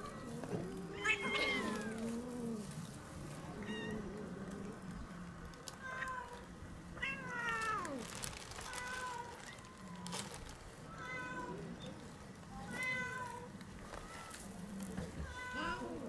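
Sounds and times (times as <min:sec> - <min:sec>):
cats meowing: 0:00.0 - 0:05.0, 0:05.6 - 0:11.9, 0:12.6 - 0:16.0.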